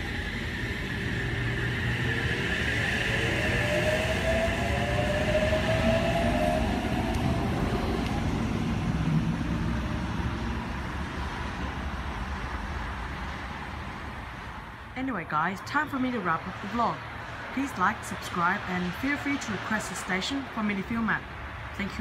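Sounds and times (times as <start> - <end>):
electric train motor whine: 0.0 - 11.0
wheels rumbling on track: 0.0 - 22.0.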